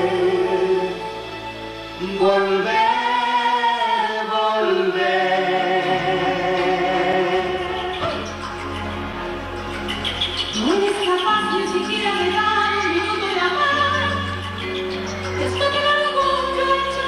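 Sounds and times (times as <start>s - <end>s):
man and woman singing: 2.0s - 8.0s.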